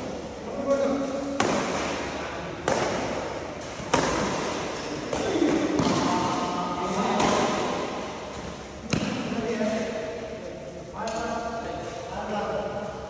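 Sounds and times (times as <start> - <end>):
racket hitting shuttlecock: 1.0 - 9.9.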